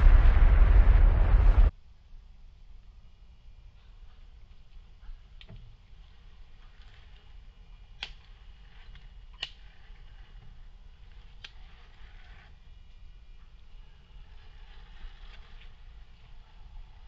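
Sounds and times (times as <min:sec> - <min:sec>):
faint steady hiss: 0:00.0 - 0:17.0
sticks cracking under toy truck: 0:07.9 - 0:09.8.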